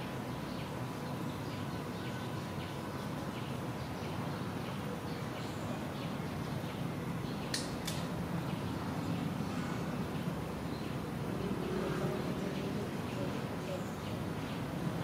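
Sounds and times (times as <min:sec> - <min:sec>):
outdoor background noise: 0:00.0 - 0:15.0
sharp clicks: 0:07.5 - 0:08.1.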